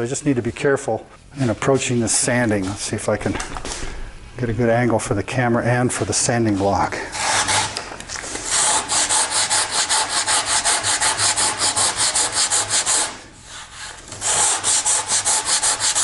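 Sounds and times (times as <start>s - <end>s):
sandpaper rasping on wood: 7.1s - 7.7s, 8.4s - 16.0s.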